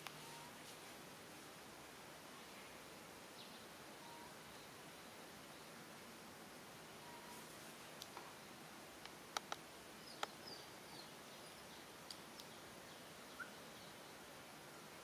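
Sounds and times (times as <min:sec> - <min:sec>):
outdoor background hiss: 0:00.0 - 0:15.0
faint high chirps: 0:00.1 - 0:00.6, 0:02.4 - 0:05.7, 0:07.0 - 0:07.5, 0:10.0 - 0:14.2
sharp clicks: 0:09.0 - 0:09.6.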